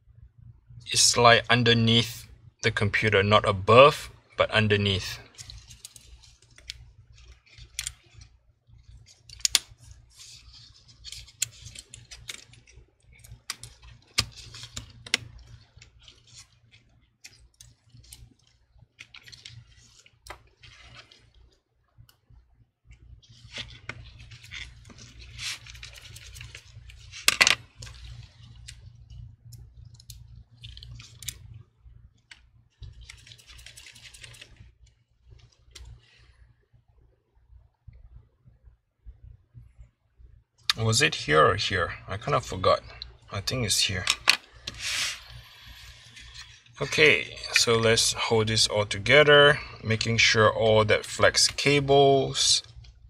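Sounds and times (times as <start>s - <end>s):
rustling: 5.1s - 21.6s, 22.8s - 31.6s, 32.2s - 36.5s, 42.8s - 48.0s.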